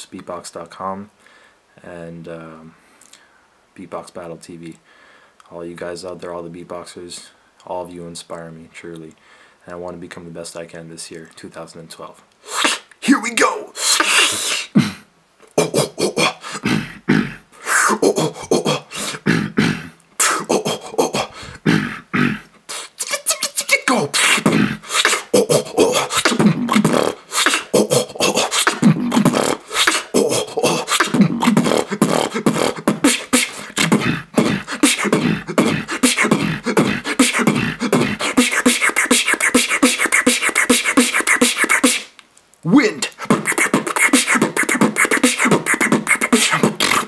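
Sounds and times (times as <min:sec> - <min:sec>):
person beatboxing: 0:12.4 - 0:47.0.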